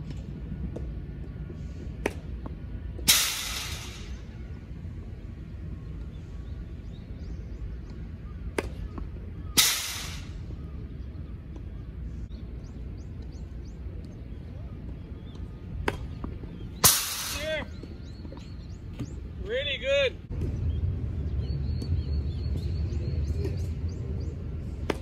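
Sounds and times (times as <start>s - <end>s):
rushing hiss of arriving ball: 3.1s - 4.2s, 9.6s - 10.4s.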